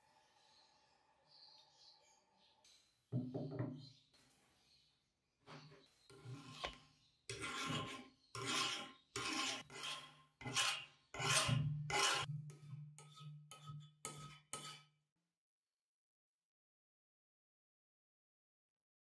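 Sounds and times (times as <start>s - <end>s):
file rasping on steel: 6.1s - 14.9s.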